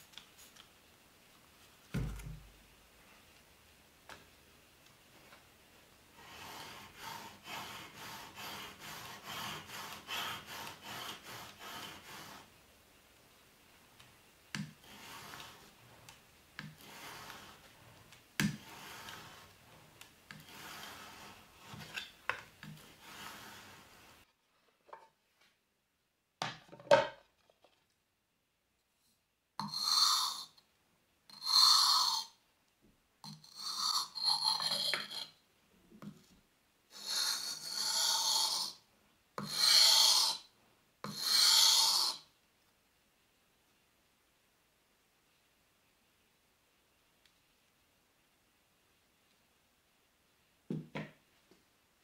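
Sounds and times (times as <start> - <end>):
blade rubbing on sharpening plate: 16.8 - 17.6, 20.4 - 22.2, 29.6 - 30.6, 31.3 - 32.4, 33.3 - 35.4, 37.0 - 38.8, 39.4 - 42.2.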